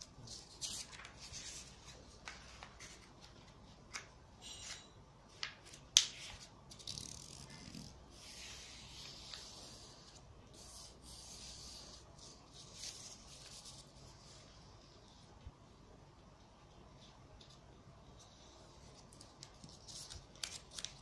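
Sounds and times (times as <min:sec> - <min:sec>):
paper crackling and folding: 0:00.0 - 0:04.1, 0:18.8 - 0:21.0
paper rustling as creased: 0:00.2 - 0:04.0, 0:18.8 - 0:21.0
paper snap: 0:05.4 - 0:06.3.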